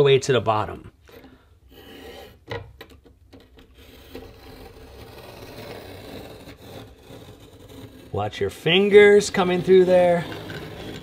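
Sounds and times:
knife blade scoring drywall paper: 3.4 - 11.0.

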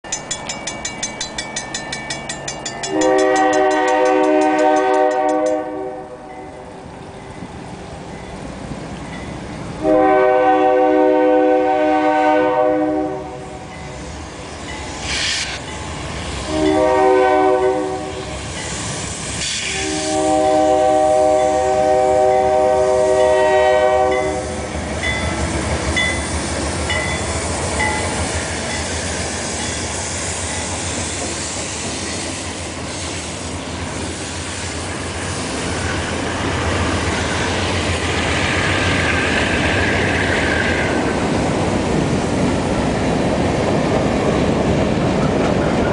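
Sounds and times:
freight train rumbling past: 0.0 - 45.9
rolling train wheels: 0.0 - 45.9
locomotive horn blasts: 2.9 - 6.3, 9.8 - 13.6, 16.5 - 18.3, 19.6 - 24.6.

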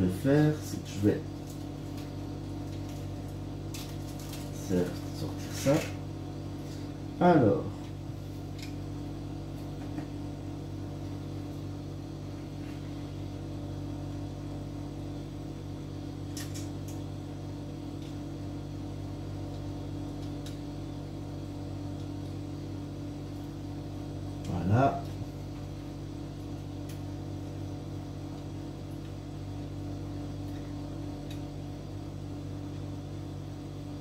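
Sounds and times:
steady electrical hum: 0.0 - 34.0.

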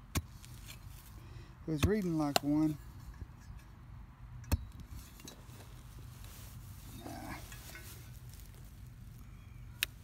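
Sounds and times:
digging tool scraping clay soil: 0.0 - 3.0
low steady rumble: 0.0 - 10.0.

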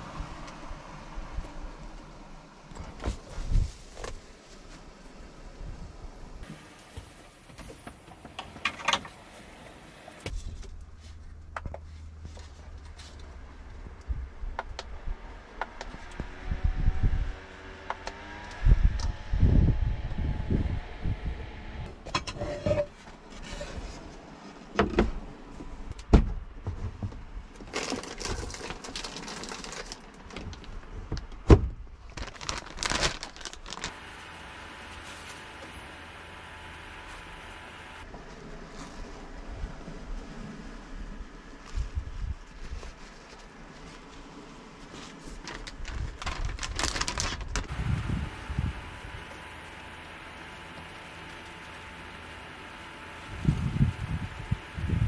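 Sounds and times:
low steady hum: 33.4 - 55.0.

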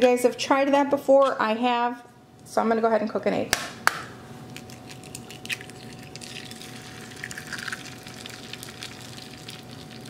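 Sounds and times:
egg sizzling and crackling: 4.6 - 10.0.

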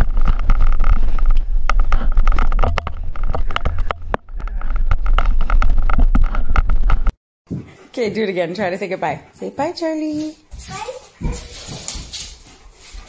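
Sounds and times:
low rumble of microphone handling: 0.0 - 7.2
knocks and scrapes against microphone: 0.0 - 7.8.

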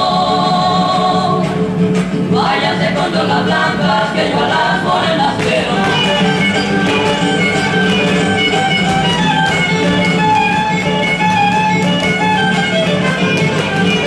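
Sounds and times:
violin and guitar folk dance music: 0.0 - 14.0
dancers' footwork taps: 5.4 - 14.0.

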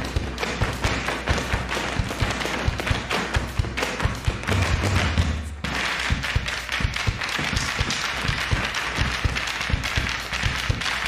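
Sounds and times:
drums beating: 0.0 - 11.0
audience applause: 5.8 - 11.0.

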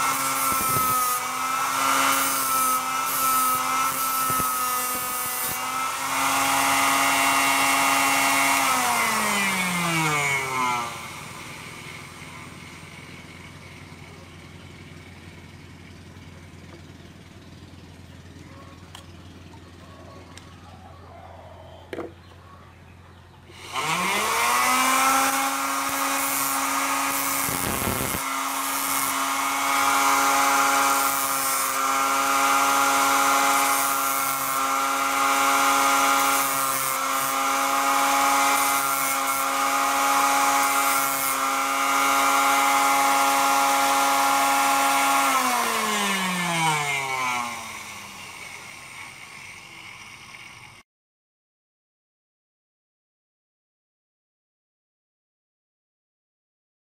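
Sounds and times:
electric motor whining: 0.0 - 14.5, 23.5 - 50.8.

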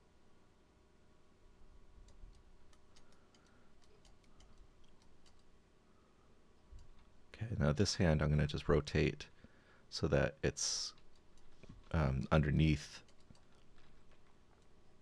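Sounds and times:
computer mouse clicks: 2.0 - 5.5, 13.0 - 14.8.

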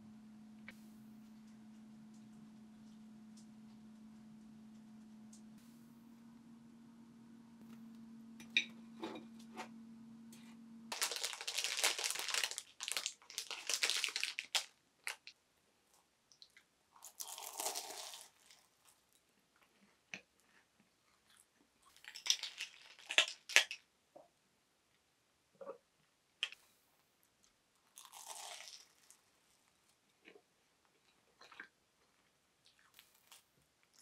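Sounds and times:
steady hum: 0.0 - 10.9
pastry crunching while chewed: 17.0 - 19.0, 27.9 - 29.2.

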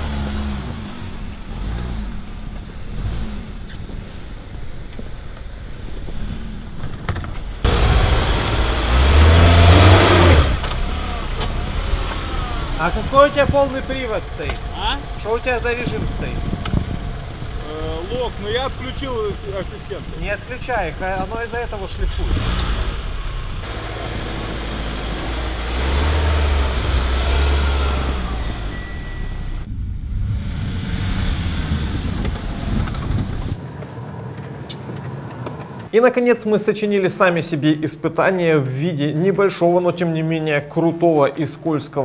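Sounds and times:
car engine revving hard: 7.6 - 17.7, 22.1 - 28.8, 30.2 - 33.4.

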